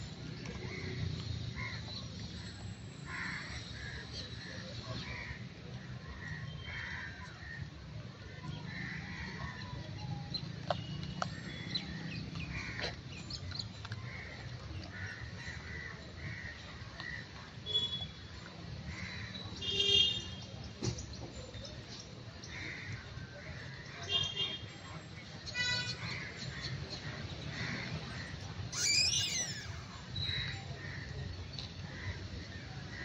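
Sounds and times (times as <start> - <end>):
short animal calls: 28.7 - 29.8.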